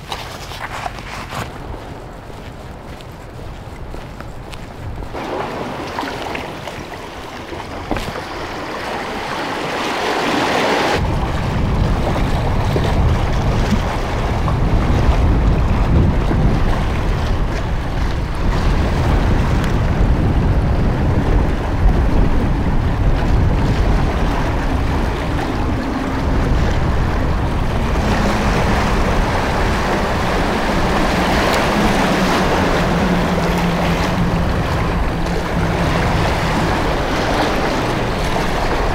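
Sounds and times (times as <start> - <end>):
sea waves splashing on concrete: 0.0 - 38.9
wind buffeting microphone: 0.0 - 38.9
low steady hum: 19.8 - 38.9.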